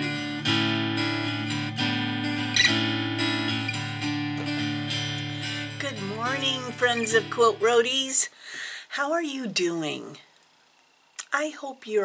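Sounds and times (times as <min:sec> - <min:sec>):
strummed acoustic guitar: 0:00.0 - 0:08.2.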